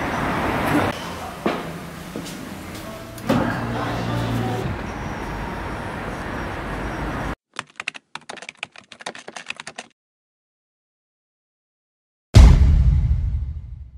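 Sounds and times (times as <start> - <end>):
outdoor street noise: 0.0 - 7.4
keyboard typing clicks: 7.6 - 9.9.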